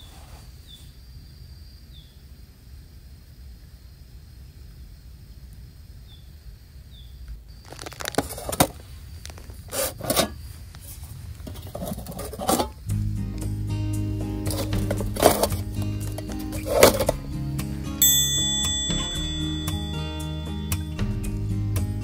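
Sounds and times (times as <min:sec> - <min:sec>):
metal lid knocks and scrapes: 0:09.7 - 0:10.4, 0:11.4 - 0:12.8, 0:14.4 - 0:17.2
music: 0:12.8 - 0:22.0.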